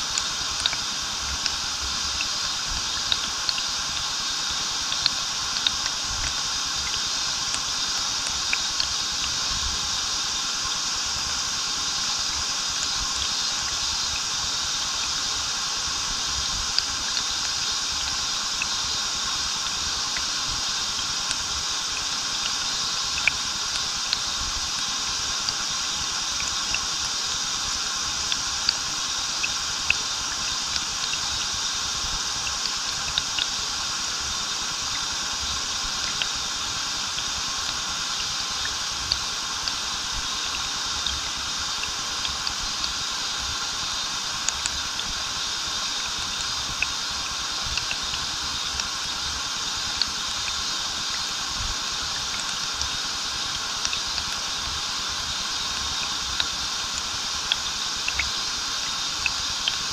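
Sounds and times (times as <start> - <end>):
small splashes and drips: 0.0 - 59.9
stream and waterfall rushing: 0.0 - 59.9.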